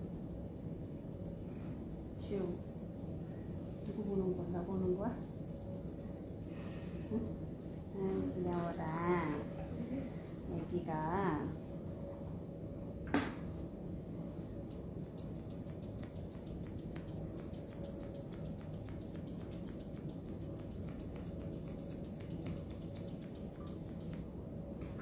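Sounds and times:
scissors snipping hair: 0.0s - 9.4s, 14.5s - 25.0s
steady low hum: 0.0s - 25.0s.

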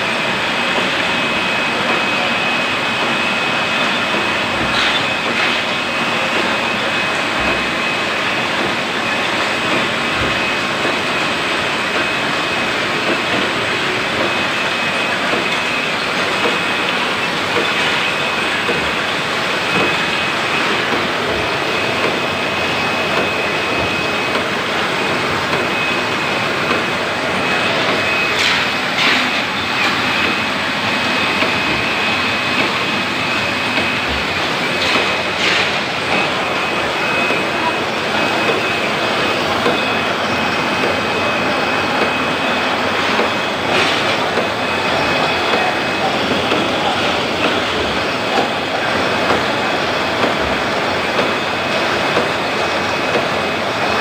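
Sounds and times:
high mechanical whine: 0.0s - 54.0s
machine clatter: 7.4s - 40.0s.

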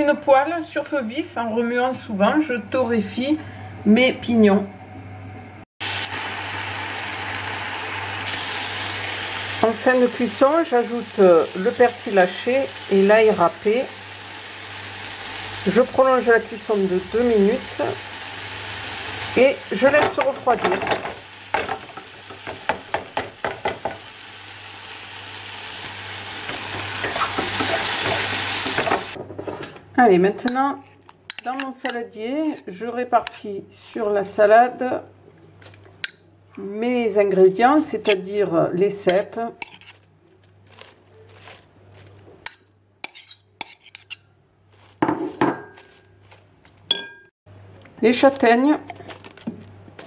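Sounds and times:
food sizzling in a frying pan: 5.8s - 29.2s
wooden spoon scraping a pan: 30.4s - 33.5s, 39.1s - 46.9s
lettuce rustling: 39.6s - 42.5s, 44.6s - 46.9s.

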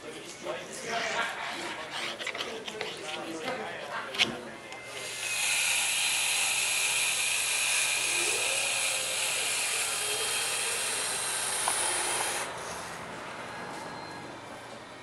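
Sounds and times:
battery caulking gun running: 5.0s - 12.5s.

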